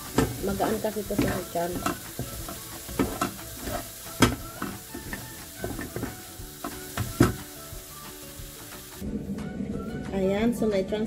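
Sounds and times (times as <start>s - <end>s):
spatula scraping frying pan: 0.0s - 7.4s
spatula knocking on pan: 0.0s - 7.5s
peas and corn sizzling in pan: 0.0s - 9.0s.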